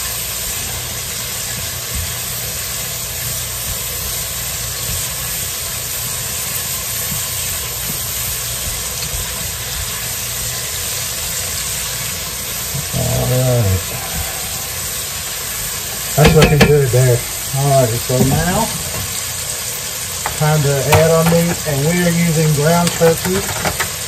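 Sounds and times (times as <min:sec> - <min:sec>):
vegetables sizzling in a pot: 0:00.0 - 0:24.0.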